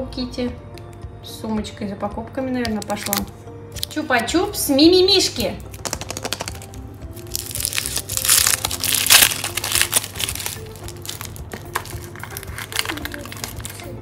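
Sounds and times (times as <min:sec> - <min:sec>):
soft background music: 0:00.0 - 0:14.0
foil wrapper crinkling: 0:02.8 - 0:03.9, 0:05.7 - 0:14.0.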